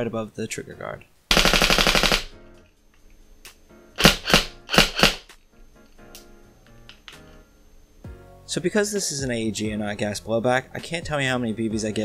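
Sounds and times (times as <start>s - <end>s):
airsoft rifle shots clacking: 1.3s - 2.3s, 4.0s - 5.3s.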